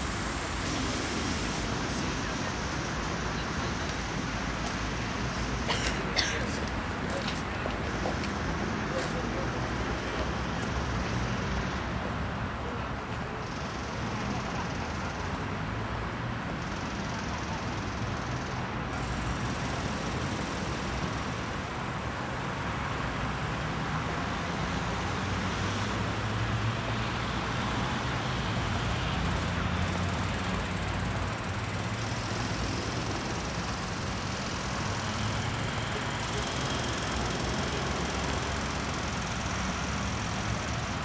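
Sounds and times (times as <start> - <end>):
rumble of passing vehicles: 0.0 - 41.0.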